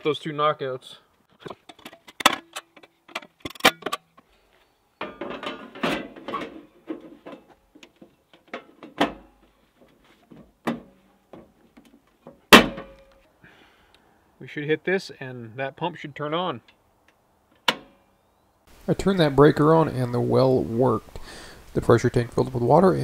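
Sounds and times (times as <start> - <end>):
sheet metal clicks and clanks: 1.6 - 4.1
metal rattling clatter: 5.0 - 9.3
sharp metal knocks: 12.5 - 13.2.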